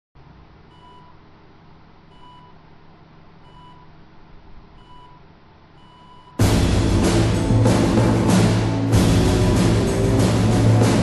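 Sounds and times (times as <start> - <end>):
short countdown beeps: 0.7 - 1.2, 2.1 - 2.6, 3.4 - 3.9, 4.8 - 5.2, 5.8 - 6.4.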